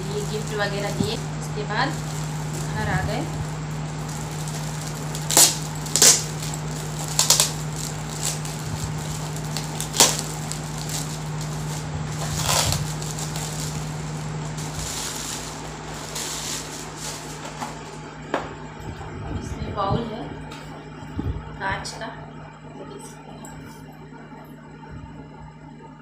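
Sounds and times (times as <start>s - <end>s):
gift-wrap paper crinkling and tearing: 1.9s - 17.8s.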